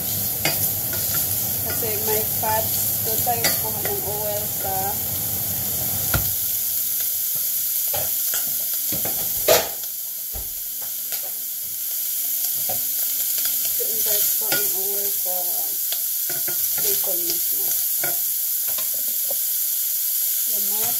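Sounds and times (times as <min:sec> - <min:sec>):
bacon sizzling in a saucepan: 0:00.0 - 0:20.9.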